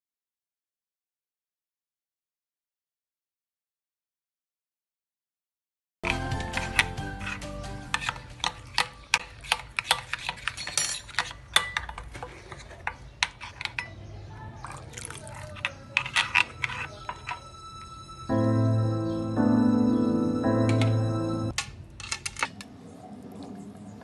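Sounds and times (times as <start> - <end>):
background music: 6.0 - 8.7, 16.1 - 21.6.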